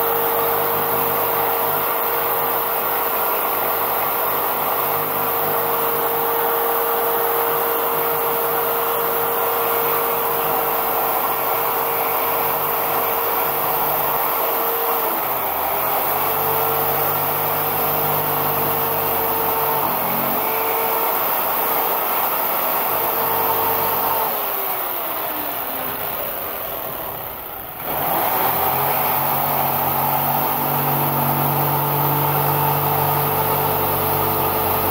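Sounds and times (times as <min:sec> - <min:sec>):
jigsaw cutting foam board: 0:00.0 - 0:34.9.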